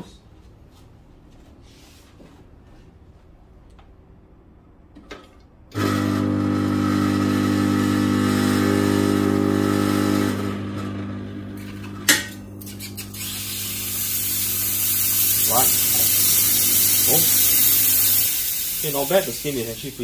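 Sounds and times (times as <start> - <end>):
espresso machine pump humming: 5.8 - 20.0
steam wand hissing: 12.7 - 20.0.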